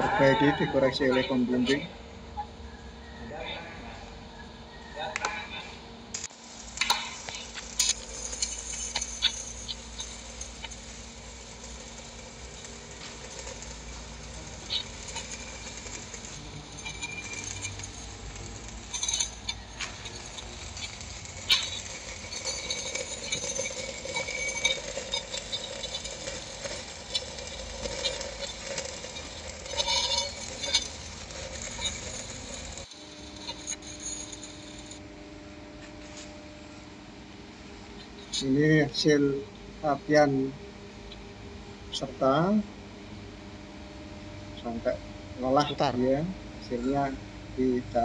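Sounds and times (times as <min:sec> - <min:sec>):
steady hum: 0:05.7 - 0:48.0
welding arc crackling: 0:06.1 - 0:35.1.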